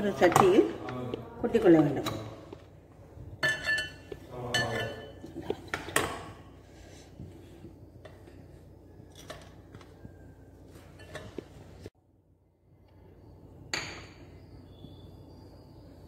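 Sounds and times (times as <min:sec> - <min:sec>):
metal spoon clinking on glass bowl: 0:03.4 - 0:05.2.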